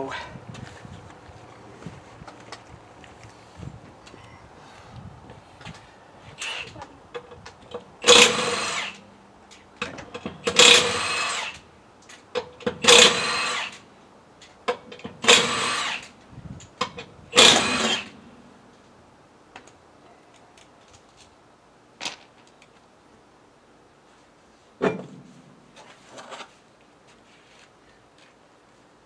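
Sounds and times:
impact wrench whining: 0:08.0 - 0:09.0, 0:10.2 - 0:11.6, 0:12.6 - 0:13.8, 0:15.2 - 0:16.1, 0:17.3 - 0:18.2.

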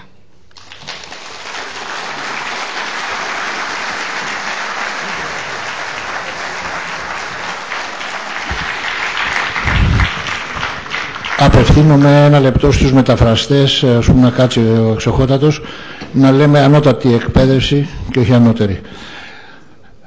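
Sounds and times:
audience applauding: 0:00.6 - 0:12.3.

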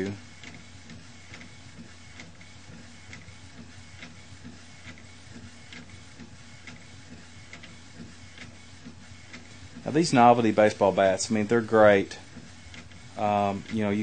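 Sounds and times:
printer mechanical hum: 0:00.0 - 0:14.0.

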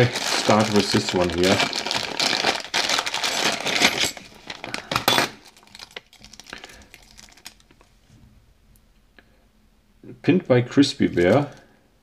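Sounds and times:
plastic bag crinkling: 0:00.0 - 0:07.8, 0:11.0 - 0:11.6.

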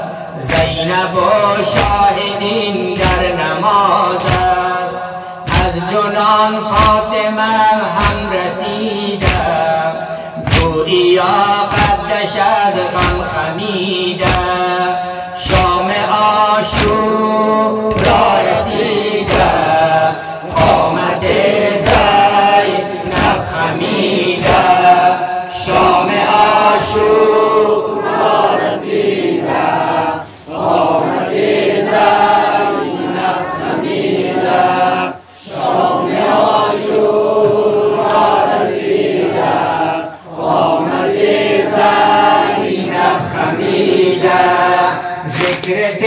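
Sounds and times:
men and boys chanting in chorus: 0:00.0 - 0:46.0
hands slapping chests: 0:00.4 - 0:00.8, 0:04.1 - 0:04.7, 0:05.4 - 0:05.8, 0:09.2 - 0:09.6, 0:10.4 - 0:10.8, 0:11.6 - 0:12.1, 0:12.9 - 0:13.4, 0:14.2 - 0:14.7, 0:15.4 - 0:15.9, 0:16.6 - 0:17.1, 0:17.9 - 0:19.8, 0:20.5 - 0:22.2, 0:45.3 - 0:45.8.

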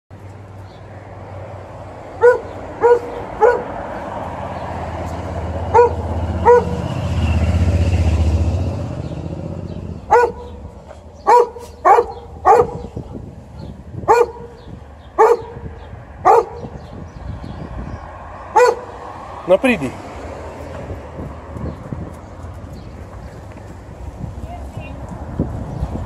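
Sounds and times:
vehicle passing: 0:00.2 - 0:26.0
dog barking: 0:02.2 - 0:03.8, 0:05.7 - 0:06.9, 0:10.1 - 0:10.6, 0:11.2 - 0:14.6, 0:15.2 - 0:16.7, 0:18.5 - 0:18.9.

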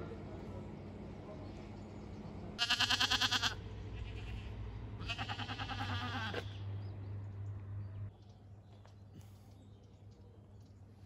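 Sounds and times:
goat bleating: 0:02.6 - 0:06.6.

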